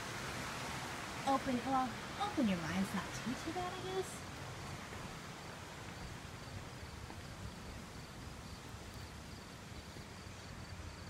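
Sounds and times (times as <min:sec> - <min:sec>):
insects chirping: 0:05.4 - 0:11.0.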